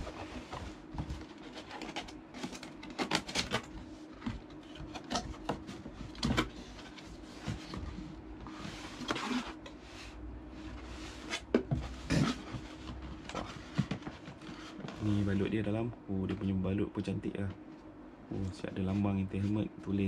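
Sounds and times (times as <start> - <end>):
cardboard sliding rustle: 0.0 - 4.8, 5.4 - 15.5.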